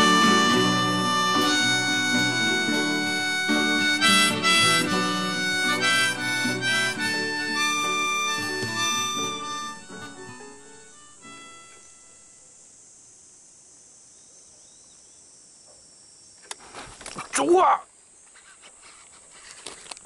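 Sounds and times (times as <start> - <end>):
instrumental music with held notes: 0.0 - 12.5.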